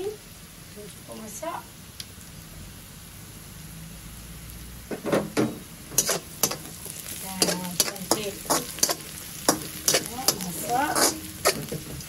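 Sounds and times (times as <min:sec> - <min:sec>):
onions sizzling: 0:00.0 - 0:12.0
metal spatula scraping wok: 0:05.9 - 0:12.0.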